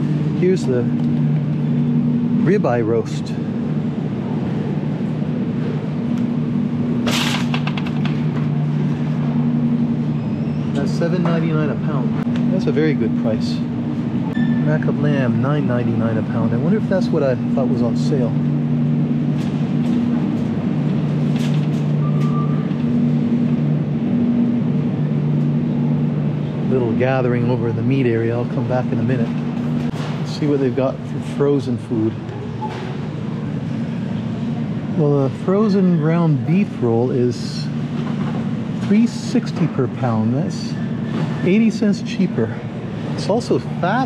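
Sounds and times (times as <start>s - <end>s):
refrigeration hum: 0.0s - 44.0s.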